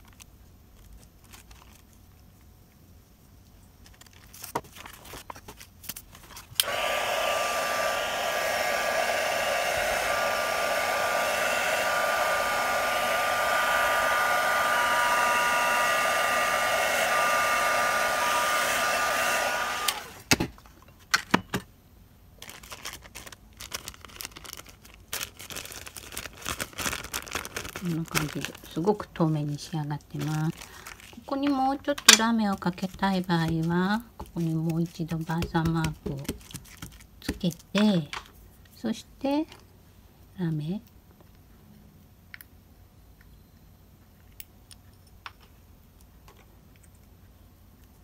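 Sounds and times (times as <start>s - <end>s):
paper handling: 0.0s - 2.0s, 3.8s - 6.6s, 32.6s - 37.6s
heat gun running: 6.6s - 20.3s, 27.7s - 29.1s.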